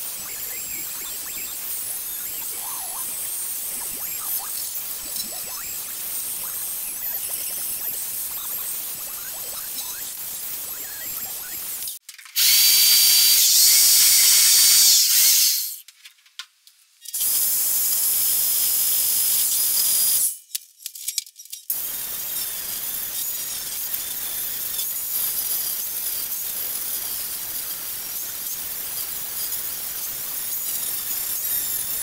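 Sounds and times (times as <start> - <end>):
angle grinder grinding sheet steel: 0.0 - 15.5.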